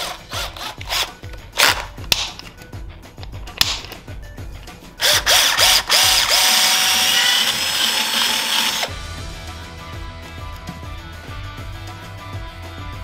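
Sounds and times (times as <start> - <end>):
cordless drill boring plastic: 0.0 - 1.8, 5.0 - 9.0.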